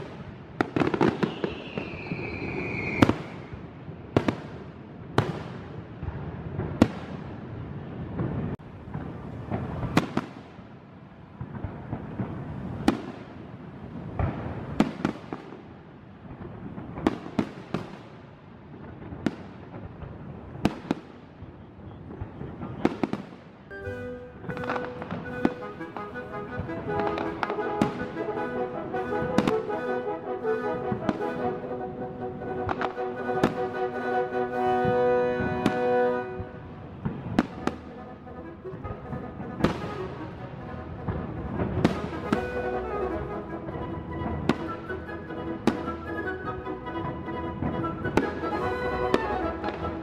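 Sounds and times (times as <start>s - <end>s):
fireworks bursting: 0.0s - 50.0s
music: 23.7s - 36.7s, 37.4s - 50.0s.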